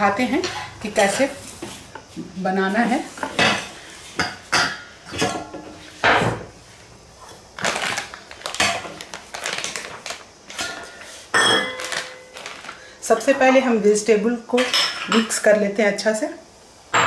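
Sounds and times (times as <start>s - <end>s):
plastic packet rustling: 7.5s - 13.1s
steel bowls and utensils clinking: 10.6s - 12.5s.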